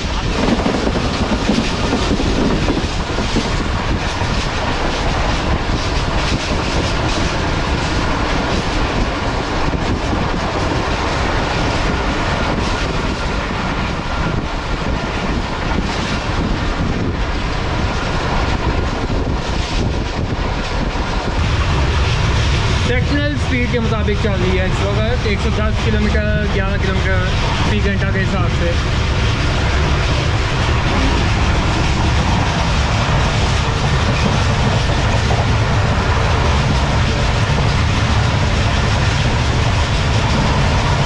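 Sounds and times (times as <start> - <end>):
train wheels on rails: 0.0 - 41.0.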